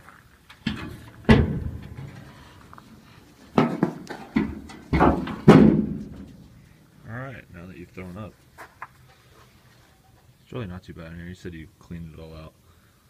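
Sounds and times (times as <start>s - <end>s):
sheet-metal hood clunking and rattling: 0.6s - 2.6s, 3.6s - 6.5s
sharp metal knocks: 0.7s - 2.4s, 3.6s - 6.4s.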